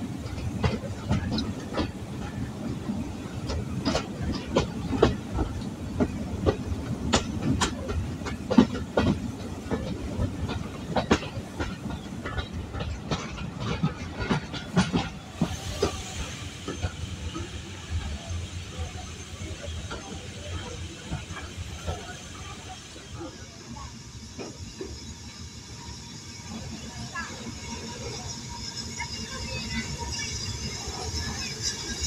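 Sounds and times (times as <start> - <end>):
train wheels clattering over rail joints: 0.0 - 23.3
low train rumble: 0.0 - 32.0
hiss: 15.0 - 32.0.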